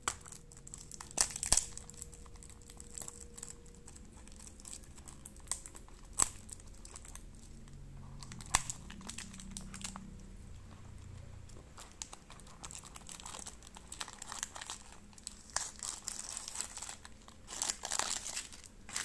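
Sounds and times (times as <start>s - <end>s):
cardboard box crinkling: 11.5s - 19.0s.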